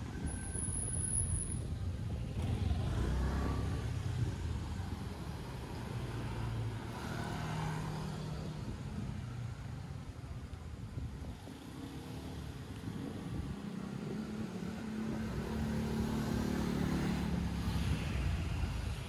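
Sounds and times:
street traffic: 0:00.0 - 0:19.0
motor scooter passing: 0:02.3 - 0:09.3, 0:11.3 - 0:19.0.

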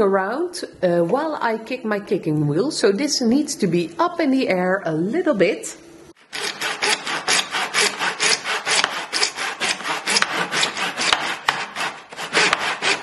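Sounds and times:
hand saw rasping through plastic pipe: 0:06.2 - 0:13.0.

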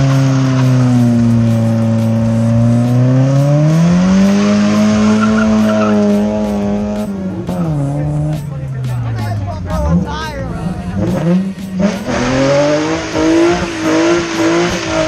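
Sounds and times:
car engine at high revs: 0:00.0 - 0:15.0
tyres squealing: 0:04.9 - 0:06.7.

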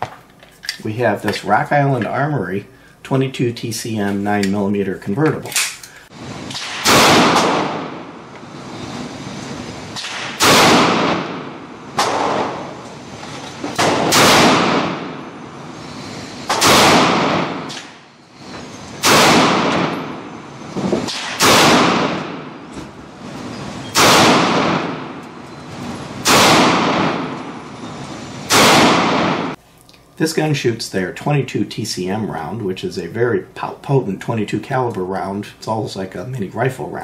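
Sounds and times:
pistol shots echoing indoors: 0:06.5 - 0:08.2, 0:10.0 - 0:12.8, 0:13.7 - 0:15.5, 0:16.5 - 0:18.1, 0:19.0 - 0:20.4, 0:21.0 - 0:22.7, 0:23.9 - 0:25.4, 0:26.2 - 0:27.7, 0:28.5 - 0:29.6.

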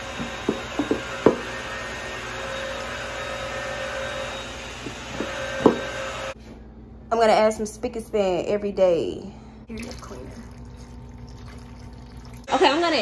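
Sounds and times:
spin mop whirring: 0:00.0 - 0:06.4.

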